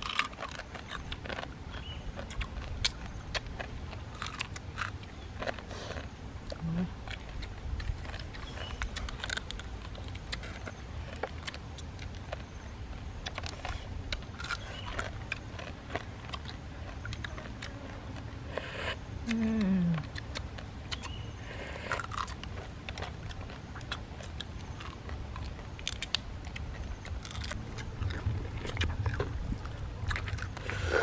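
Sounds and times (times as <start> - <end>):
chewing: 0.0 - 31.0
falling vocal hum: 19.3 - 20.1.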